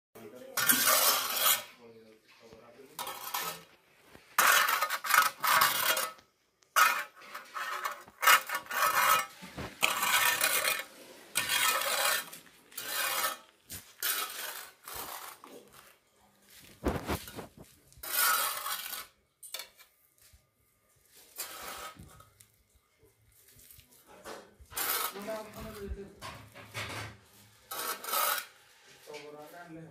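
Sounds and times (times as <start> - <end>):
metal scoop scraping sand on concrete: 0.4 - 1.8, 2.9 - 6.2, 6.8 - 15.9, 16.6 - 19.9, 21.1 - 22.4, 24.7 - 26.0, 26.6 - 29.2.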